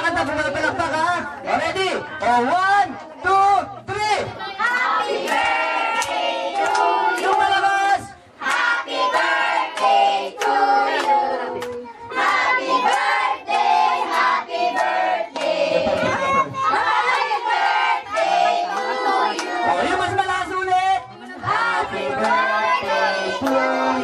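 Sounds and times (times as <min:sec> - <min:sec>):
hands clapping: 0:04.6 - 0:07.6, 0:09.7 - 0:17.2, 0:18.1 - 0:19.6, 0:22.2 - 0:23.7
children singing: 0:10.0 - 0:19.9, 0:21.4 - 0:24.0.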